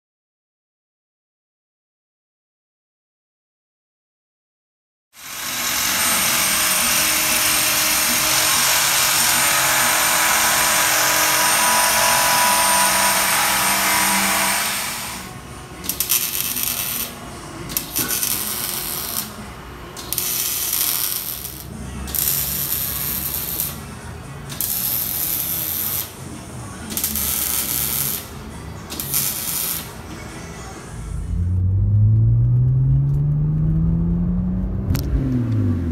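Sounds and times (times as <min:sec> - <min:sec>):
metal cutting bursts: 0:05.2 - 0:26.2, 0:26.9 - 0:30.4
loud steady hiss: 0:05.2 - 0:30.2.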